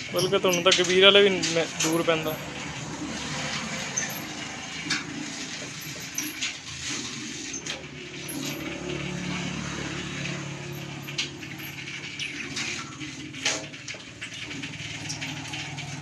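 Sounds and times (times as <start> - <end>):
diesel engine humming: 0.0 - 6.0, 14.3 - 16.0
sharp metallic clicks and knocks: 0.0 - 16.0.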